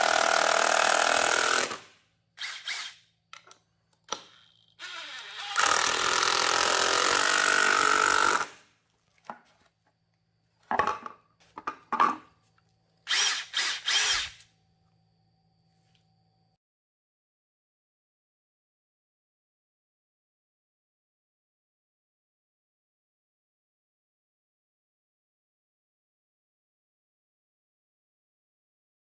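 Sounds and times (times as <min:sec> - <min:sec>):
impact driver driving screw into wood: 0:04.1 - 0:08.6, 0:13.1 - 0:14.4.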